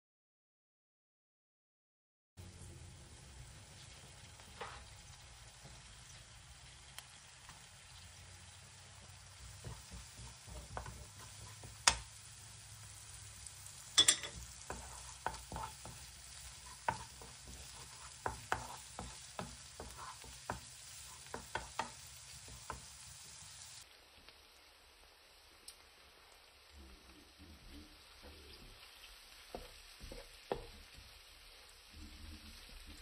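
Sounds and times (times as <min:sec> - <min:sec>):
onion sizzling in a pan: 0:02.4 - 0:33.0
wooden spoon knocking pan: 0:09.5 - 0:12.1, 0:14.0 - 0:22.9, 0:29.5 - 0:31.0.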